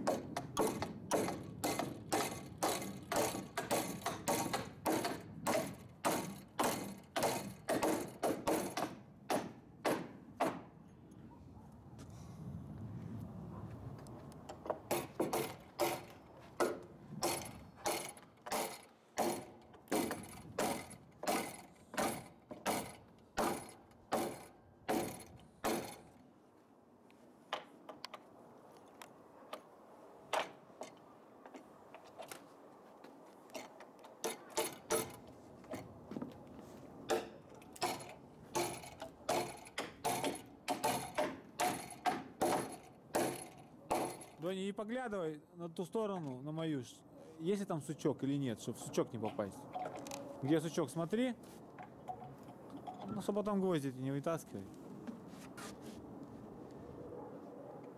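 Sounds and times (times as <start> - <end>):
hammer driving nails into wood: 0.0 - 10.7, 14.6 - 26.2, 33.6 - 35.8, 37.1 - 44.4.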